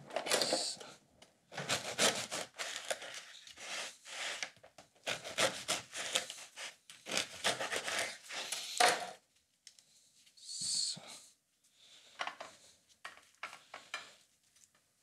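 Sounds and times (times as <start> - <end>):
bread knife sawing through bread: 1.6 - 4.4, 5.0 - 8.6.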